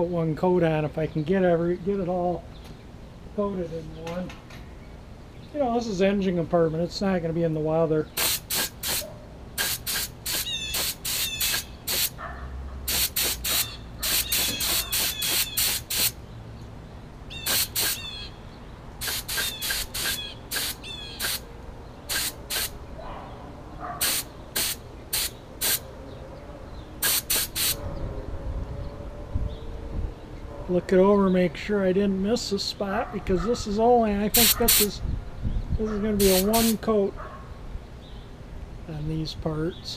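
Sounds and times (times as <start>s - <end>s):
paint spray gun hissing in bursts: 8.2s - 12.2s, 12.9s - 16.2s, 17.4s - 18.2s, 19.0s - 21.4s, 22.1s - 22.8s, 24.0s - 25.8s, 27.0s - 27.8s, 34.3s - 34.9s, 36.2s - 36.8s.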